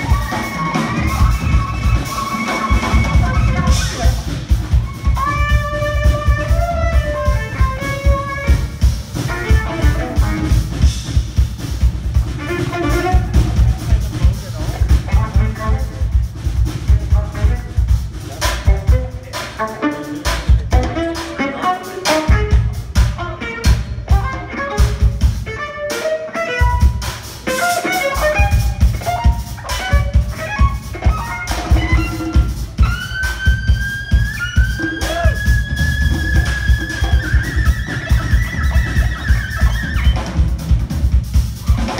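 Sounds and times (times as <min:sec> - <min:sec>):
amplified violin: 0:00.0 - 0:41.9
bass: 0:00.0 - 0:41.9
drum kit: 0:00.0 - 0:41.9.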